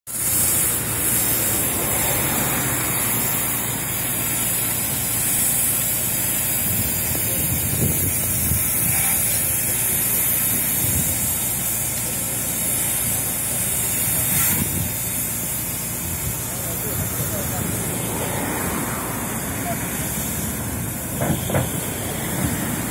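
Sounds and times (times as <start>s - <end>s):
fire hose spraying water: 0.1s - 22.9s
low engine hum: 0.6s - 5.5s, 16.4s - 22.9s.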